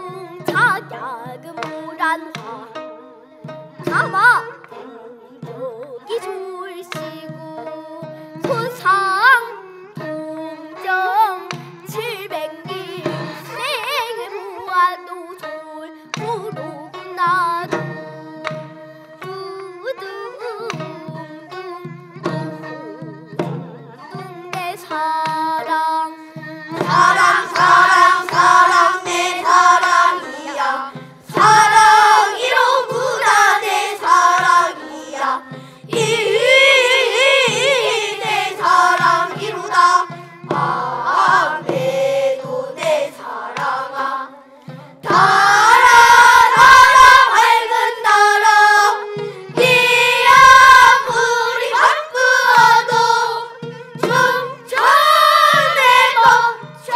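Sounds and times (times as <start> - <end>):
traditional instrumental accompaniment: 0.0 - 56.9
children singing together: 26.7 - 44.4, 45.0 - 56.9.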